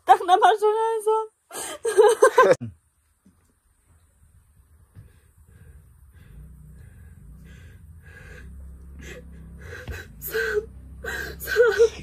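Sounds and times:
woman laughing: 1.6 - 2.6, 11.2 - 12.0
low hum: 3.9 - 12.0.

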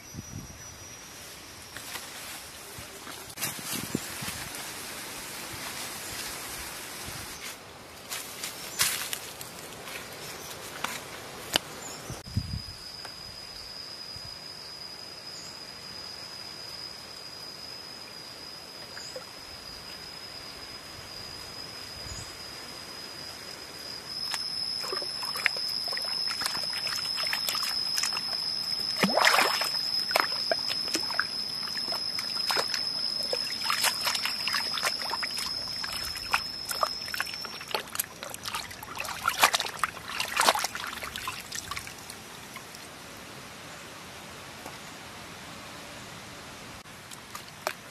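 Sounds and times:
high-pitched insect drone: 12.1 - 42.1
clicks and splashes: 24.3 - 42.7
water trickling and sloshing: 24.3 - 42.9.

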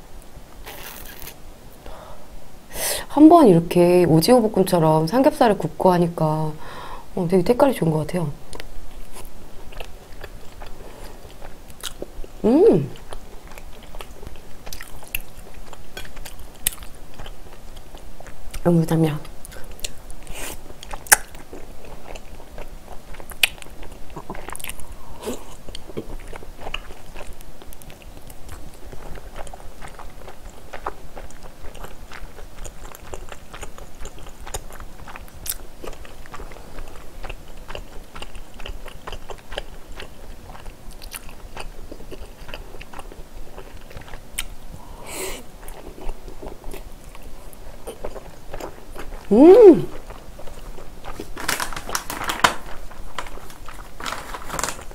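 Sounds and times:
close chewing with mouth smacks: 8.5 - 12.4, 13.0 - 18.6, 19.4 - 44.8, 45.6 - 49.3, 49.9 - 54.9.

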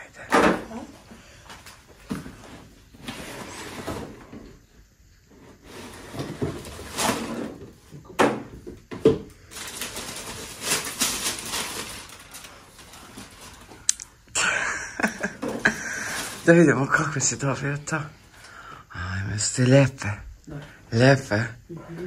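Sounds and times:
paper and cardboard rustling: 9.5 - 13.8.

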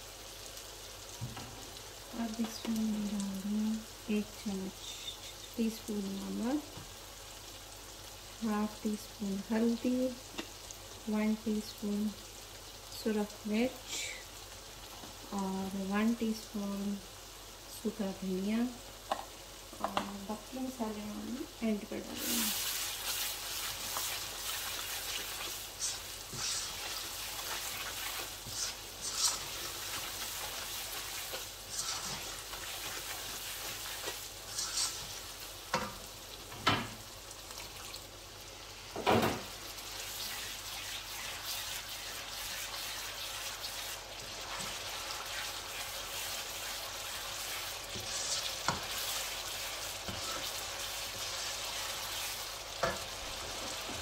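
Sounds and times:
spices sizzling in hot oil: 0.0 - 54.0
spatula scraping a wok: 22.2 - 35.9, 39.9 - 53.7.

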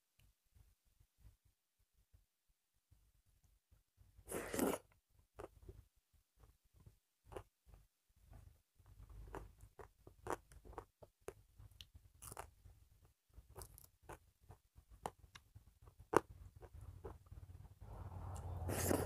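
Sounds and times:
person chewing: 7.3 - 7.5, 9.0 - 17.3.

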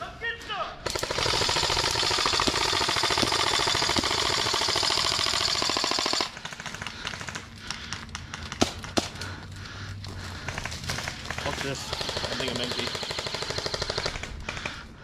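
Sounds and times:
airsoft rifle full-auto burst: 0.8 - 7.5, 10.5 - 14.9.

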